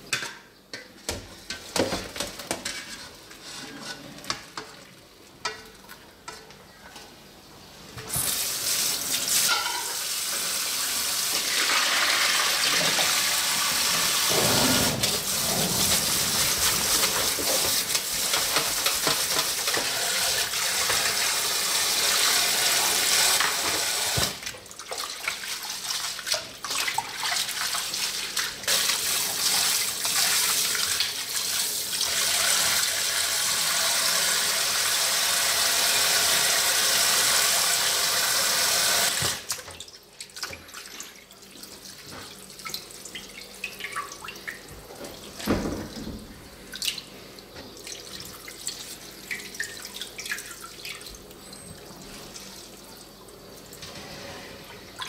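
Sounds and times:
pan and strainer clatter: 9.3s - 10.0s, 14.3s - 21.2s.

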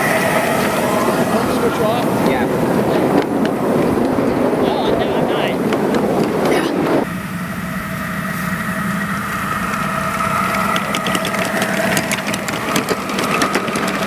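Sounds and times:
small engine idling: 0.0s - 14.0s.

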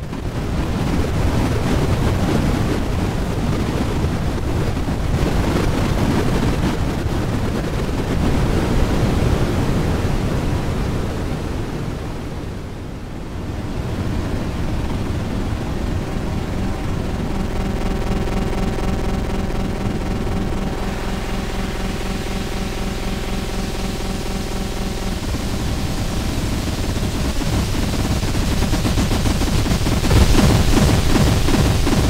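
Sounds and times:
dense noisy synth wash: 12.4s - 32.0s.

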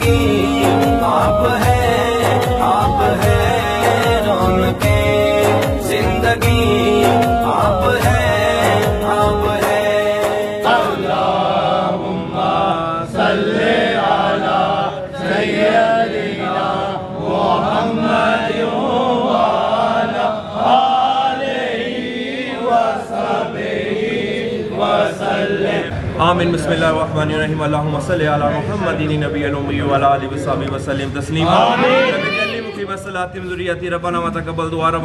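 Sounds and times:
devotional song with music: 0.0s - 25.9s
men chanting together: 0.0s - 25.9s.

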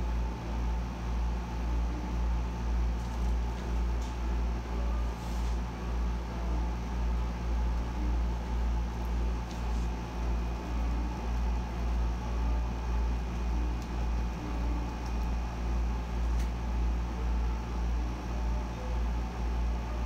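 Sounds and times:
air conditioner humming: 0.0s - 20.0s.

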